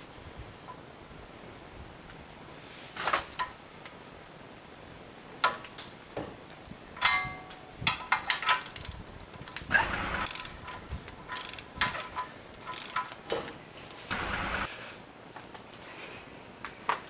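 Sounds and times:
wrench clinking and scraping: 7.0s - 9.0s, 9.9s - 14.7s.

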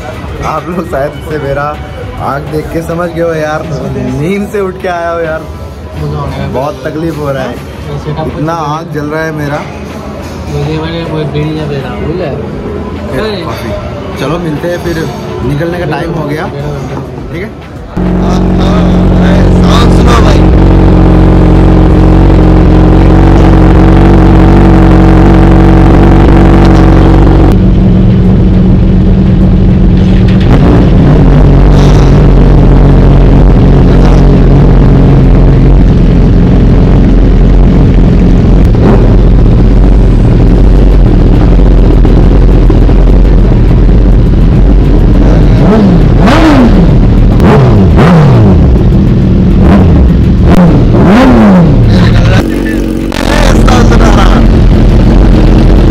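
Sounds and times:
motorcycle engine idling: 18.0s - 30.5s, 31.4s - 55.9s
bassier motorcycle idling: 18.0s - 55.9s.

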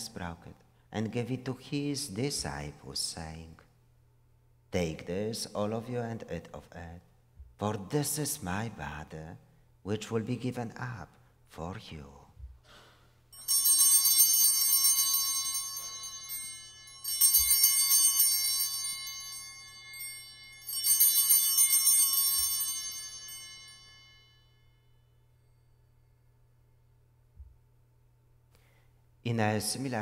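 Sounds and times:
altar bells ringing: 13.3s - 26.4s.

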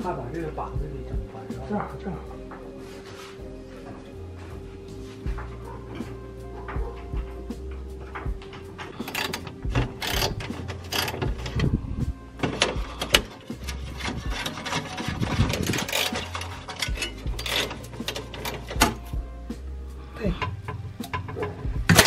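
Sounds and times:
fasteners clicking and rattling: 5.8s - 11.8s, 12.4s - 19.1s, 20.4s - 22.0s.

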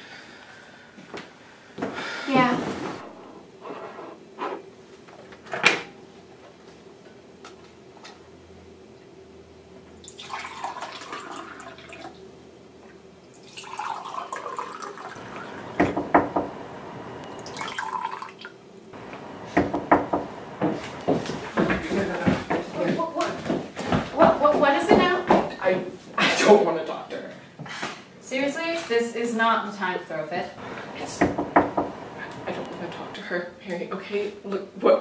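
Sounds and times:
liquid pouring into a mug: 10.0s - 12.2s, 13.3s - 15.8s, 17.3s - 18.6s.

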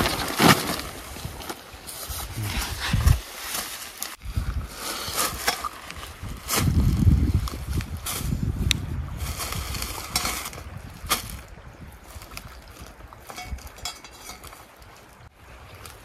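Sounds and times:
bags rustling: 0.0s - 8.4s
wind rumble on microphone: 1.0s - 3.3s, 4.2s - 16.0s.

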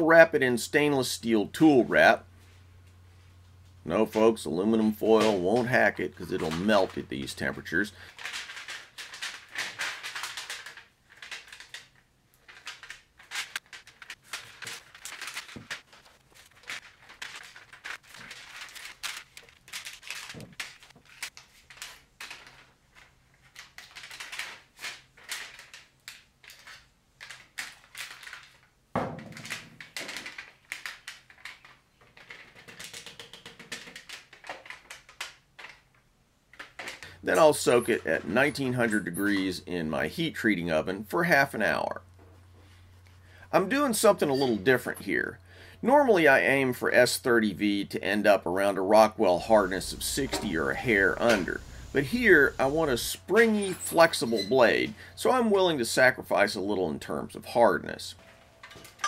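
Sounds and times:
foil crinkling and crackling: 4.9s - 28.7s, 49.2s - 55.3s.

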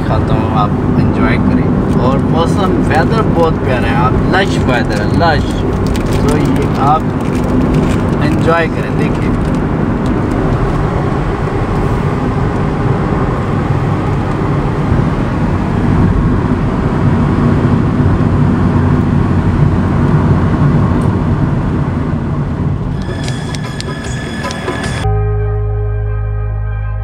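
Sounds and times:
car road and engine noise: 0.0s - 27.0s
music: 22.9s - 27.0s.

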